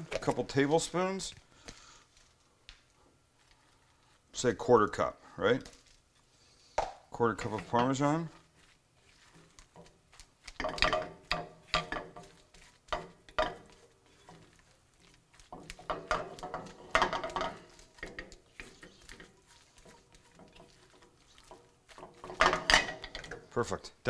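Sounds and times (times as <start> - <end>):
spatula scraping frying pan: 7.3 - 23.5.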